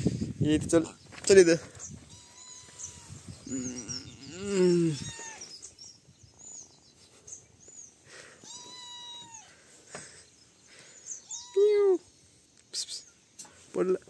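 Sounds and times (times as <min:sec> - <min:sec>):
small birds chirping: 0:00.0 - 0:14.0
cat meowing: 0:02.0 - 0:03.2, 0:04.0 - 0:05.5, 0:08.4 - 0:09.6, 0:11.2 - 0:12.0.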